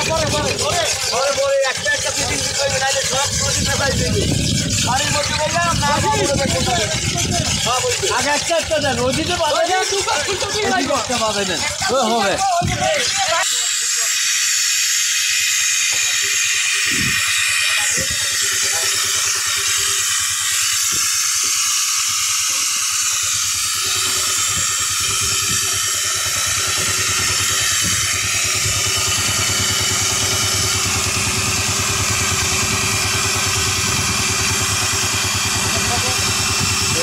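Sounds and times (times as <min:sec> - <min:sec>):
boat engine idling: 0:00.0 - 0:13.4, 0:16.8 - 0:37.0
loud steady hiss: 0:13.3 - 0:37.0.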